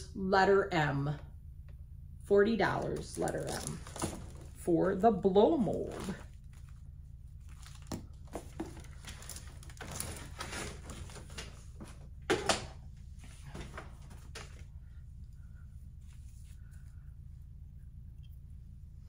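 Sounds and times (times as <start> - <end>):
steady low hum: 0.0 - 19.0
rustling of handled objects: 2.8 - 5.0, 5.6 - 12.2.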